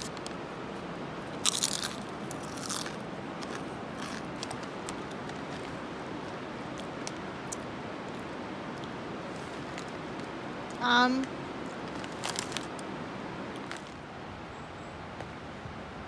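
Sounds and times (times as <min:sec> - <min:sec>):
potato chip crunching: 0:01.4 - 0:05.6.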